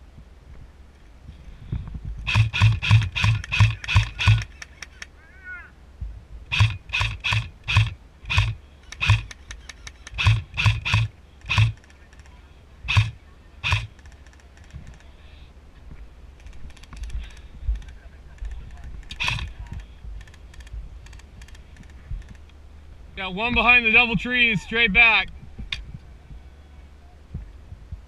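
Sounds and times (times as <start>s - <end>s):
airsoft rifle shots: 2.2s - 5.0s, 6.5s - 12.3s, 12.9s - 14.4s, 19.1s - 19.8s.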